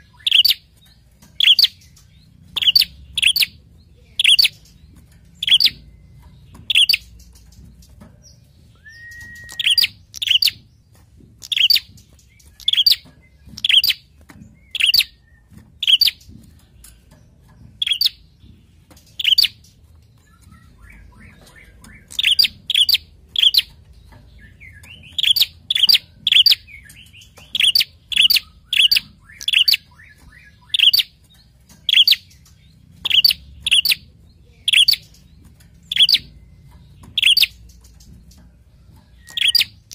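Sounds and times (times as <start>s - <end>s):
bird chirping: 0.0s - 39.9s
bird whistle: 8.8s - 10.6s.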